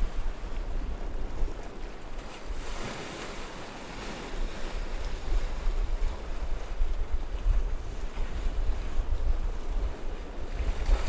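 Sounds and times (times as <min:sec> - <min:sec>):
ocean waves breaking: 0:00.0 - 0:07.2
wind rumbling on microphone: 0:00.0 - 0:11.0.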